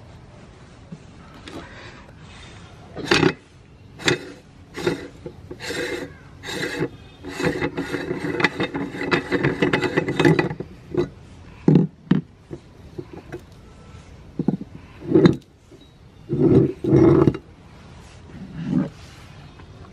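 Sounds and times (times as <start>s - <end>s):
metal scraping and clicking: 3.0s - 13.5s, 14.4s - 17.5s.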